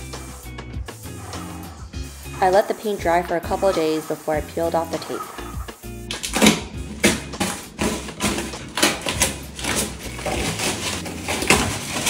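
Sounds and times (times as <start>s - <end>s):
tape and plastic sheeting peeling: 6.1s - 12.0s.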